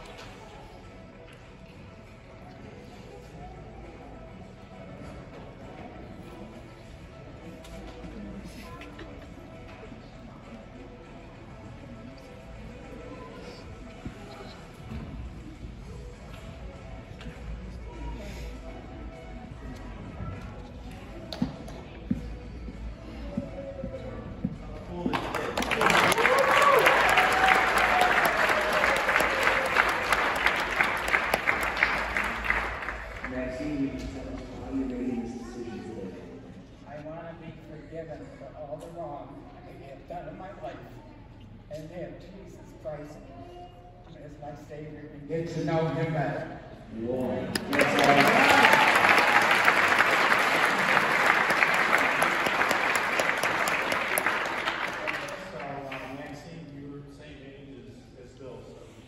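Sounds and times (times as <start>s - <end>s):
congregation applauding: 25.1s - 33.8s, 47.5s - 56.3s
long held cheer: 25.6s - 32.6s, 47.6s - 55.2s.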